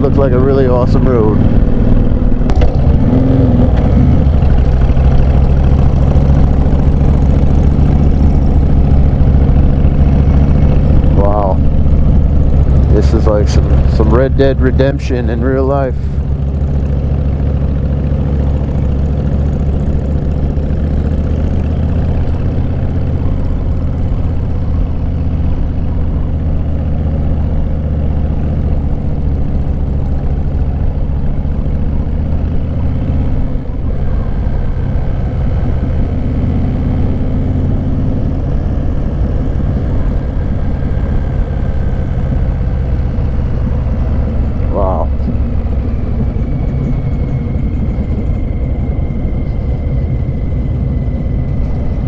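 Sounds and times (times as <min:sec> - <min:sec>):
motorcycle engine running: 0:00.0 - 0:52.0.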